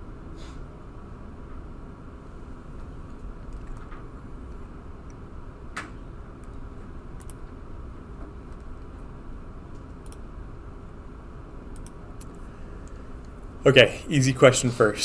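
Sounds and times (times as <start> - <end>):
low room hum: 0.0 - 15.0
computer mouse clicks: 7.2 - 7.4, 9.7 - 10.3, 11.7 - 13.4.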